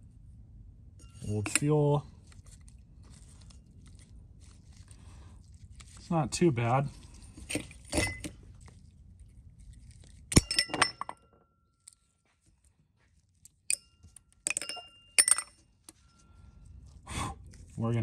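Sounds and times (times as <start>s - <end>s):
metal parts clinking on tray: 7.9s - 8.3s, 14.4s - 15.6s.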